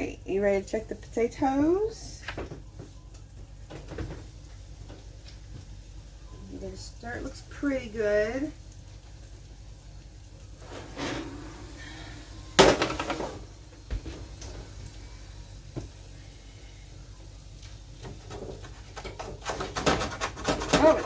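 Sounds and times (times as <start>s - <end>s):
utensil scraping pan: 10.6s - 11.9s, 18.3s - 21.0s.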